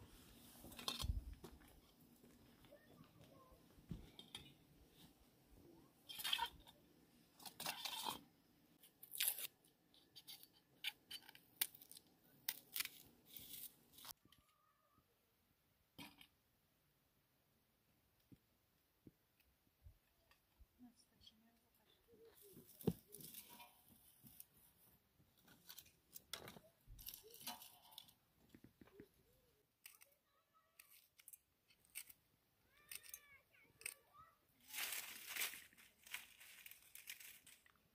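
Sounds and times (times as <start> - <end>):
knife peeling onion skin: 9.0 - 9.5
dry straw crackling: 34.6 - 37.8.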